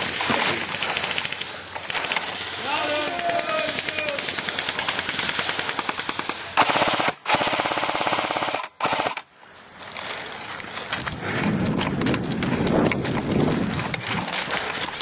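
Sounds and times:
airsoft gun firing full auto: 3.2s - 9.2s.

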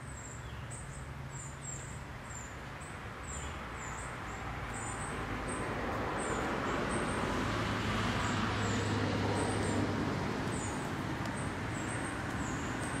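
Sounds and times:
distant road traffic: 0.0s - 13.0s
vehicle engine passing: 4.3s - 13.0s.

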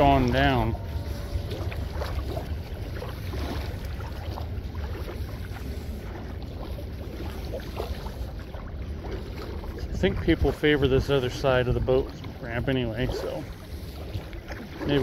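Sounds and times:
wind rumble: 0.0s - 11.9s
river water: 0.0s - 15.0s.

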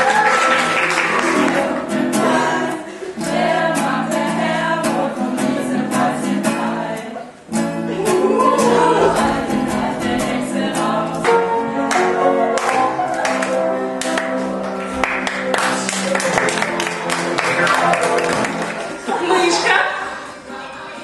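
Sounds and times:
music with singing voices: 1.1s - 14.7s, 17.0s - 21.0s.

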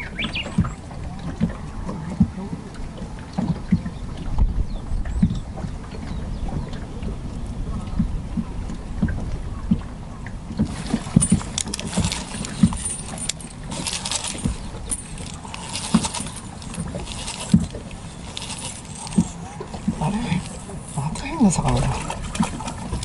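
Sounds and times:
water knocking against boat hull: 0.0s - 6.9s, 7.7s - 18.1s
fishing tackle clinking and rustling: 10.6s - 23.0s.

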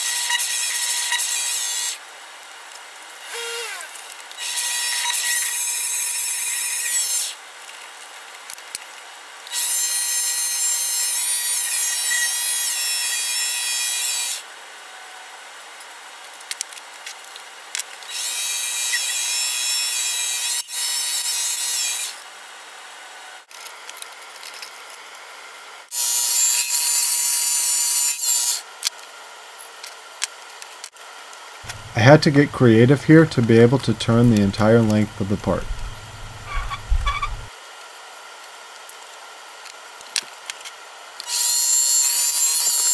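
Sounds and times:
lathe running: 31.7s - 37.5s
lathe cutting squeal: 34.1s - 37.5s.

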